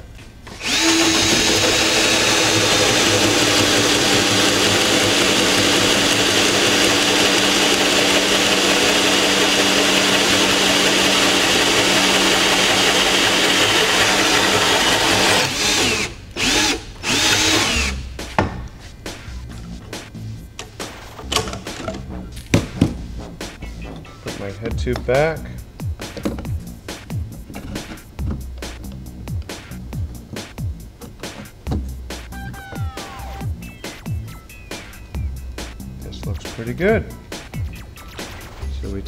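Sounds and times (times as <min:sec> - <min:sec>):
cordless drill cutting bamboo: 0:00.6 - 0:18.0.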